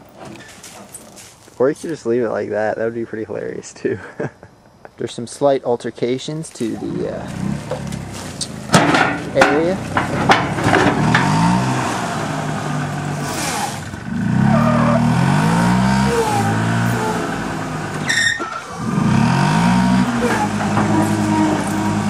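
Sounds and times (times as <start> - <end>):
golf cart engine revving: 7.2 - 22.0.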